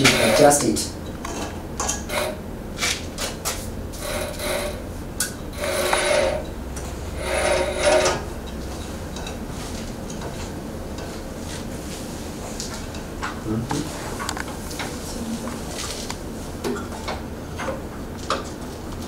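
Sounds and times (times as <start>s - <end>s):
bandsaw wheel whirring scrapes: 0.0s - 0.8s, 1.9s - 2.4s, 3.9s - 8.4s.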